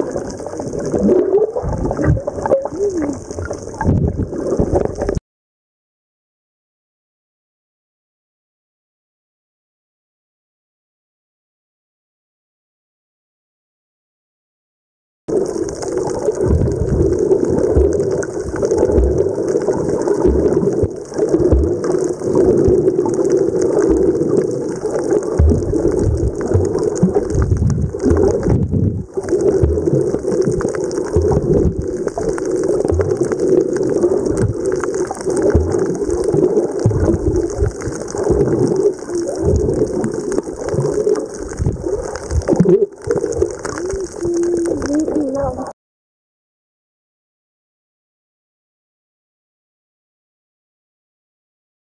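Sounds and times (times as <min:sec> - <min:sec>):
muffled underwater water rushing: 0:00.0 - 0:05.2, 0:15.3 - 0:45.7
low thumps: 0:25.4 - 0:29.8.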